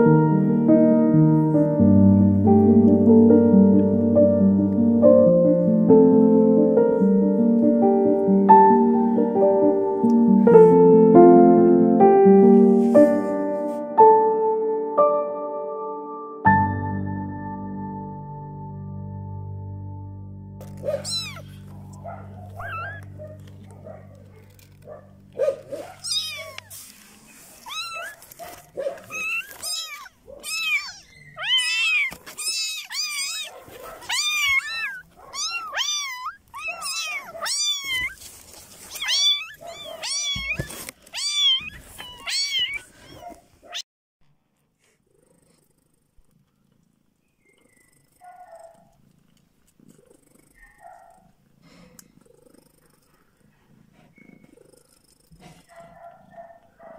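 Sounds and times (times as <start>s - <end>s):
kittens mewing: 20.6s - 43.8s.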